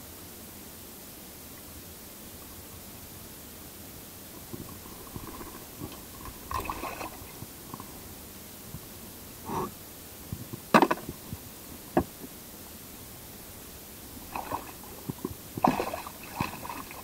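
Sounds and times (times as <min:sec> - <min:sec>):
fish thrashing and splashing: 0:04.7 - 0:07.5, 0:14.2 - 0:17.0.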